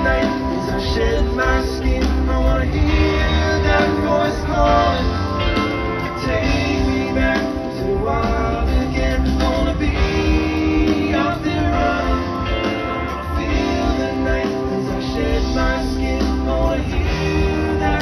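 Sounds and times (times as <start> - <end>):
rock band playing live: 0.0 - 18.0.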